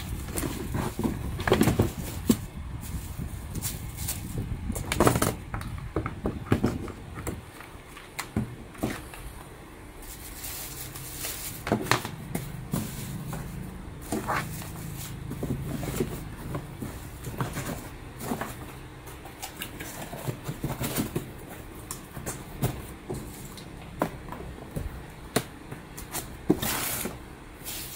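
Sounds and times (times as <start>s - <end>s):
packaging rustling: 0.0s - 5.5s, 10.0s - 25.3s
cardboard flaps folding: 0.0s - 9.3s, 10.2s - 27.9s.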